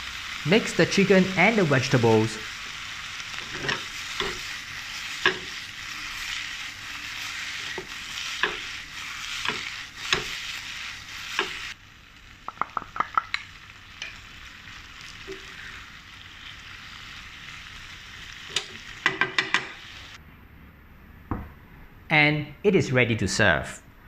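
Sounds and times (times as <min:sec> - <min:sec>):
food sizzling in a wok: 0:00.0 - 0:20.2
spatula clicking against pan: 0:12.5 - 0:14.1.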